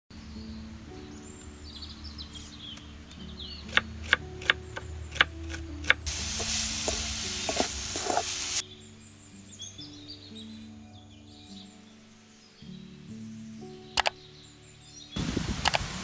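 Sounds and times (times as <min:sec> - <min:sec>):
birdsong: 0:00.1 - 0:16.0
soft piano music: 0:00.1 - 0:16.0
frying sizzle in metal pan: 0:06.1 - 0:08.6
wooden spatula stirring: 0:06.1 - 0:08.6.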